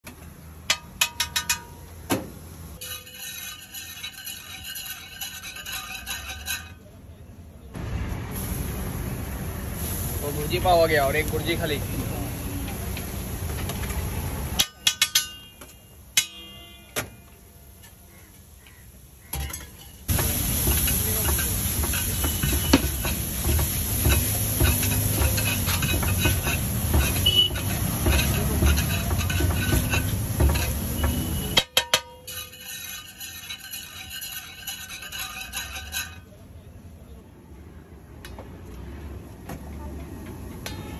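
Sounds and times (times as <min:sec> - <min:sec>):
metal spatula on iron griddle: 0:00.2 - 0:07.6, 0:14.2 - 0:36.7.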